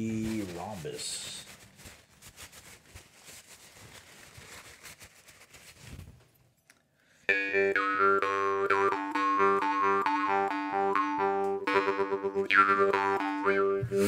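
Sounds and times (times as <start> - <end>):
paper rustling: 0.0 - 6.4
jaw harp drone: 7.3 - 14.0.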